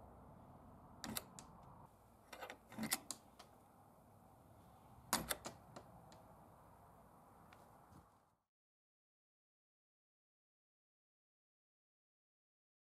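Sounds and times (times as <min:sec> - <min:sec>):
metal gate latch clanking: 0:05.1 - 0:05.6.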